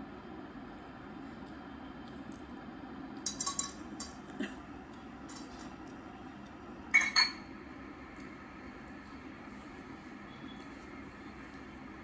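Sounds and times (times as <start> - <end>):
low background hum: 0.0 - 12.0
chopsticks clinking against bowl: 3.3 - 4.2.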